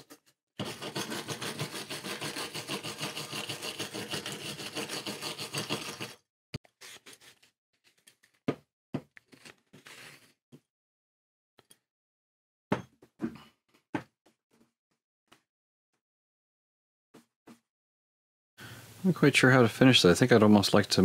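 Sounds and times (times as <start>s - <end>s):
wire brush scraping steel: 0.6s - 6.2s.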